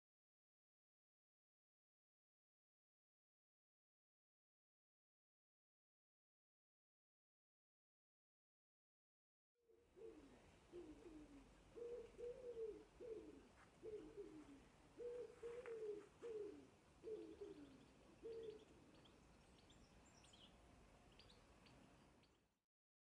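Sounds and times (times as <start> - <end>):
small birds chirping: 9.8 - 22.6.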